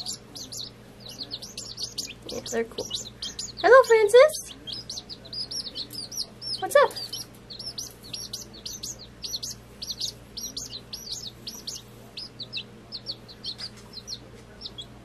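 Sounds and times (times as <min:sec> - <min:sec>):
chicks peeping: 0:00.0 - 0:15.0.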